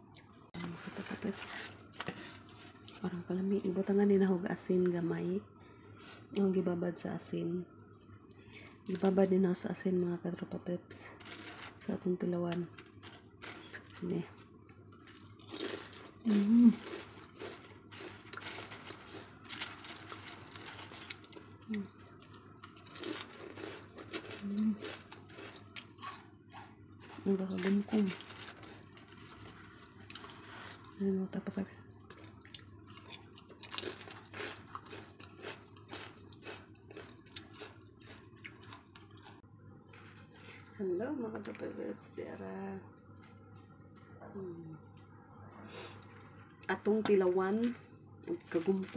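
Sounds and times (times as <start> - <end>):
potato chips crunching: 11.2 - 11.9, 12.5 - 31.0, 32.0 - 40.7, 47.5 - 48.9.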